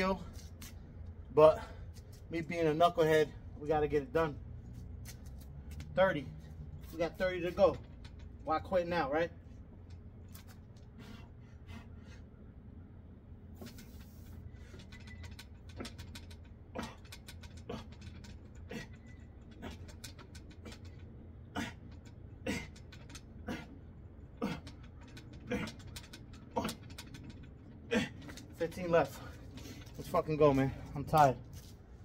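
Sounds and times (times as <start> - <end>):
steady low hum: 0.0 - 32.0
man breathing hard: 10.8 - 12.5
strained grunts: 14.6 - 31.2.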